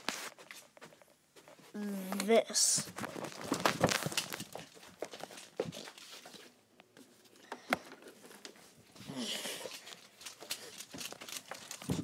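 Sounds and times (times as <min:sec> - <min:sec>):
hands rustling fabric on microphone: 0:00.0 - 0:07.3.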